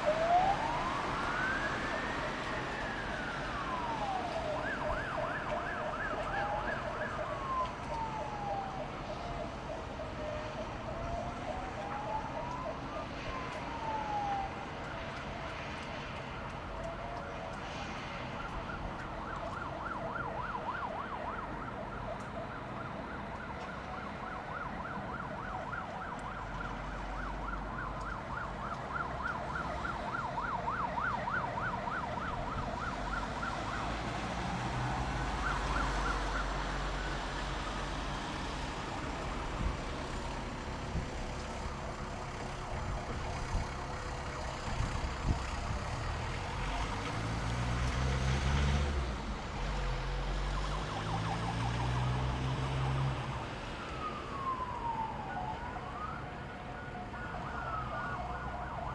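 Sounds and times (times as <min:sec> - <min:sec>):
siren warbling: 0:00.0 - 0:14.5, 0:50.5 - 0:56.2
siren wailing: 0:00.0 - 0:47.5, 0:50.3 - 0:58.9
vehicle engine rumble: 0:00.0 - 0:58.9.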